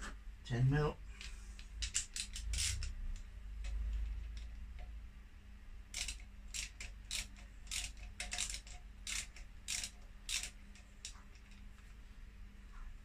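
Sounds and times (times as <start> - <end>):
socket ratchet clicking: 1.2 - 5.0, 5.9 - 11.6.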